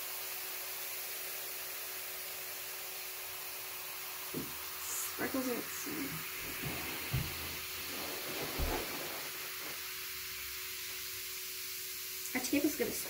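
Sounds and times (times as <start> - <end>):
baking soda and vinegar fizzing: 4.0 - 13.0
soft low bumps: 6.0 - 9.5.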